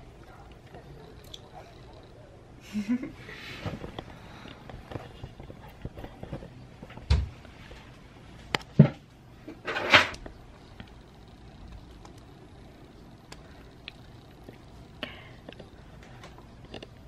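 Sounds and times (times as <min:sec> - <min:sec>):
sharp knocks and thumps: 0:05.8 - 0:07.4.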